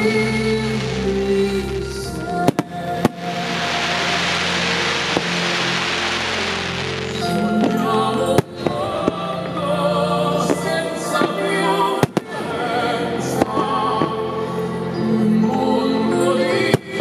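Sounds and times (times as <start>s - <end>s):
music with singing voice: 0.0s - 17.0s
fireworks bangs: 0.7s - 9.4s, 10.4s - 14.2s.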